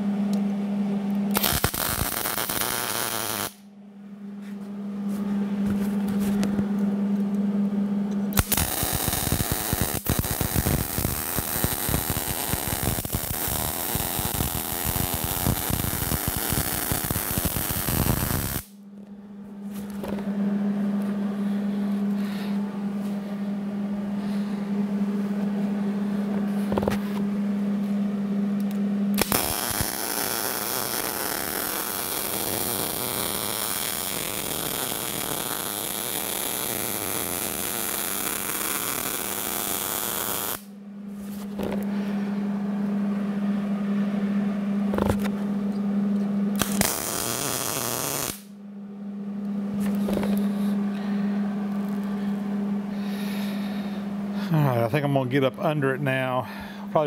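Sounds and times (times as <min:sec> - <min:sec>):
welder low hum: 0:00.0 - 0:57.0
welding arc crackling: 0:01.3 - 0:03.6, 0:08.4 - 0:18.8, 0:29.2 - 0:40.7, 0:46.6 - 0:48.5.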